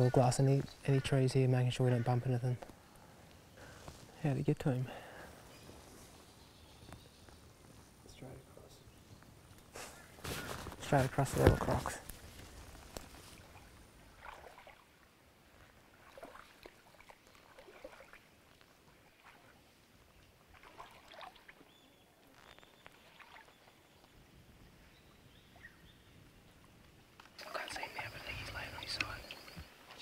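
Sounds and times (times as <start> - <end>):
legs wading through shallow water: 9.8 - 24.6
water splashes: 13.0 - 23.9.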